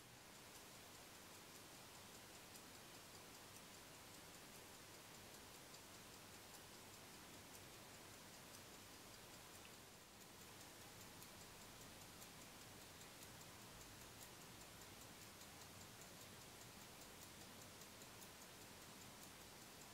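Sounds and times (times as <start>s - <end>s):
pocket watch ticking: 0.0s - 19.9s.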